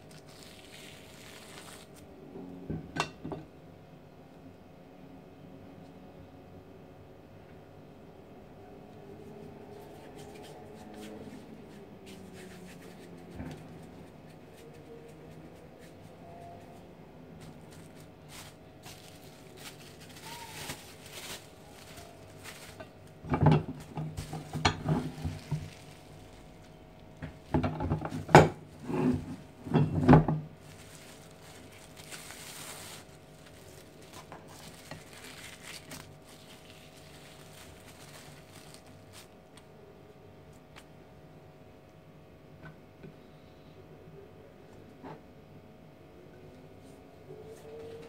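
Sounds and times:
cling film crinkling: 0.0s - 2.1s, 17.4s - 27.4s, 30.6s - 39.7s.

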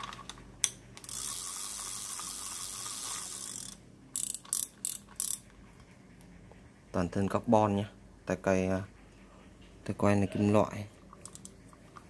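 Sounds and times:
fishing reel clicks: 0.6s - 5.4s
fishing reel whirring: 1.0s - 5.4s.

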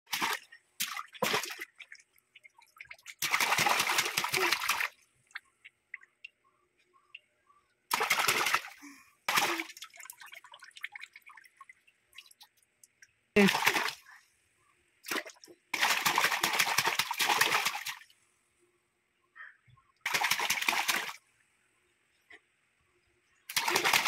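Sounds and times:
water splashing in basin: 0.1s - 5.4s, 7.9s - 12.5s, 13.4s - 14.0s, 15.0s - 18.1s, 20.0s - 21.2s, 23.5s - 24.0s
water dripping: 0.1s - 7.3s, 9.3s - 14.0s.

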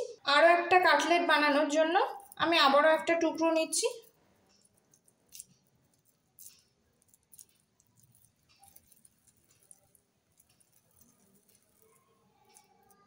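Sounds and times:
hands rolling food mixture: 0.8s - 13.0s.

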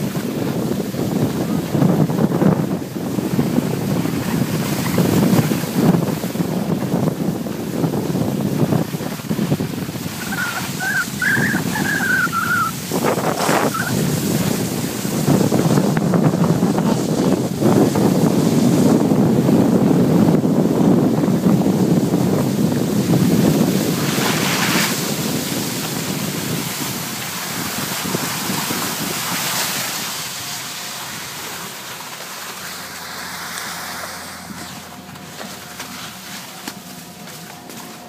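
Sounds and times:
wind buffeting microphone: 0.0s - 38.0s
skis sliding over snow: 9.4s - 15.8s, 23.4s - 30.3s, 31.0s - 34.6s.

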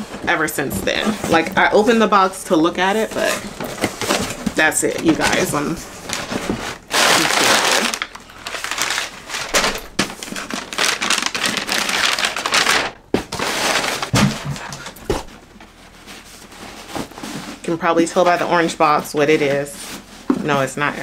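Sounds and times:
tissue paper crinkling: 0.9s - 14.1s.

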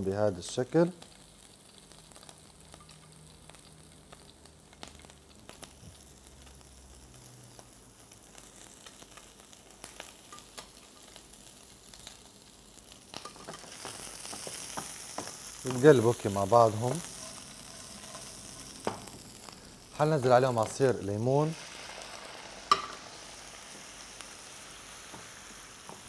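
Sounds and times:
seafood sizzling in a frying pan: 0.0s - 26.0s
utensils clicking on plate and pan: 17.0s - 19.2s, 22.7s - 23.0s.

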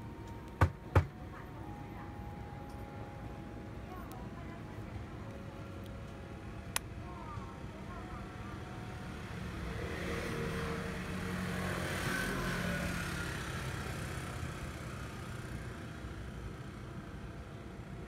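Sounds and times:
outdoor background noise: 0.0s - 18.0s
motor vehicle passing by: 8.9s - 15.9s.

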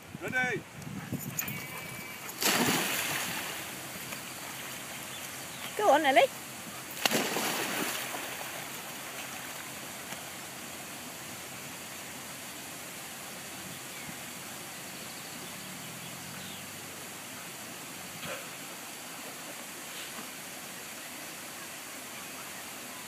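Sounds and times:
steady rushing water: 0.0s - 23.0s
dog splashing into pond: 1.4s - 11.0s.

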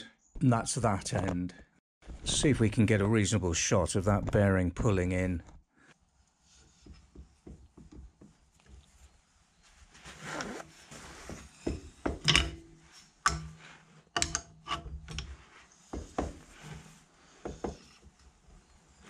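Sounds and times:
metal clicks knocks and scraping: 11.7s - 15.4s.

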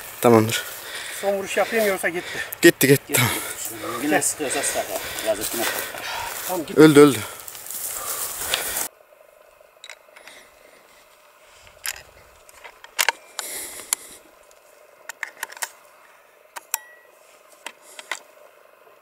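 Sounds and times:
rifle metallic clicks and rattles: 11.8s - 13.2s, 15.1s - 15.8s.

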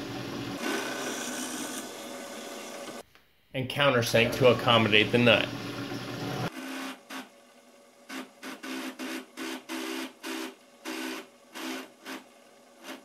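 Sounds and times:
drill press whirring into wood: 0.6s - 3.0s, 8.1s - 13.0s.

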